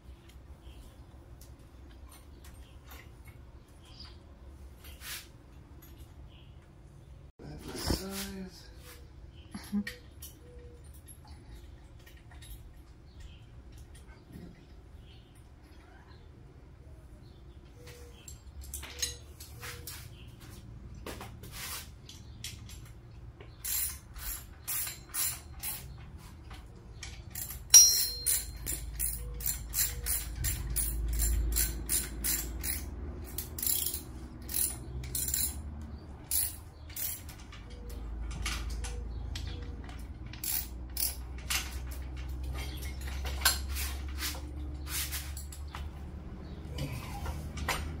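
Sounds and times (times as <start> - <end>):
ratchet wrench clicking: 23.6 - 25.8, 27.1 - 35.6, 36.2 - 37.4, 39.3 - 41.7
sharp metal clank: 27.4 - 29.2.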